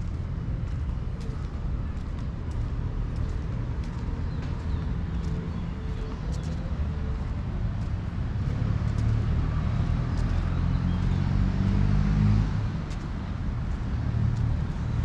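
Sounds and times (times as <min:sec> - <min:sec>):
vehicle engine passing: 0:04.5 - 0:15.0.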